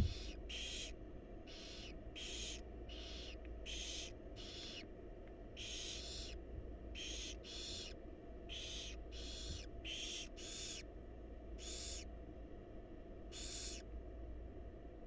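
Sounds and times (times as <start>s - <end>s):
owl chicks hissing: 0.0s - 4.8s, 5.6s - 6.4s, 7.0s - 10.8s, 11.6s - 12.0s, 13.3s - 13.8s
steady low hum: 0.0s - 15.0s.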